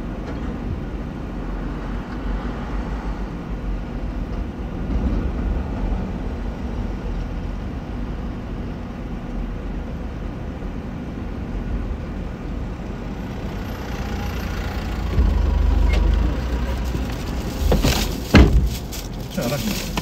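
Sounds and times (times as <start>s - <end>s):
vehicle rumble inside car: 0.0s - 20.0s
loud thump: 15.1s - 16.0s, 17.6s - 18.8s.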